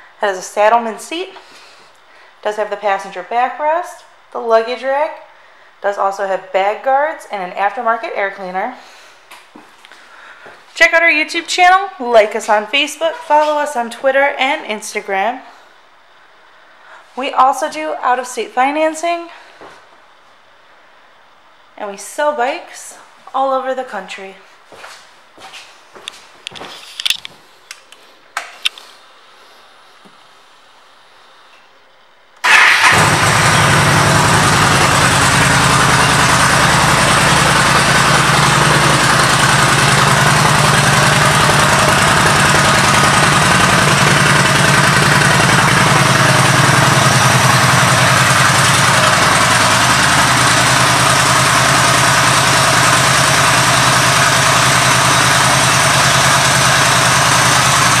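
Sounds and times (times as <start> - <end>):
motorcycle engine starting and idling: 32.4 - 58.0.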